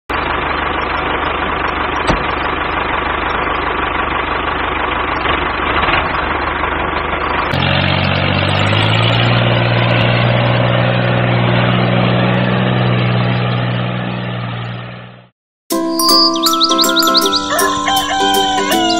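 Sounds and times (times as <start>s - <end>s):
engine running: 0.1s - 18.9s.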